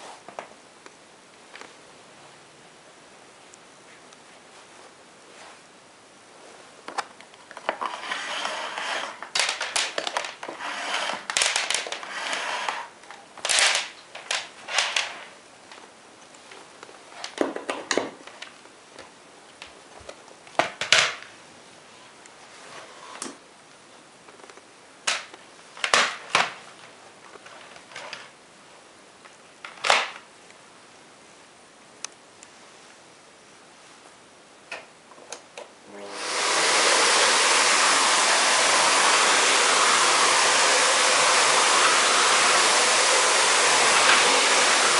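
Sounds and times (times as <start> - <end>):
vacuum hose rustling and scraping: 7.5 - 15.4, 21.9 - 23.4.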